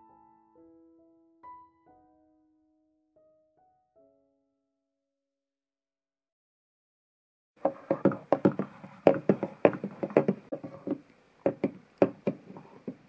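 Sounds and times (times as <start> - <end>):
horse hooves clopping on hard ground: 7.6 - 13.0.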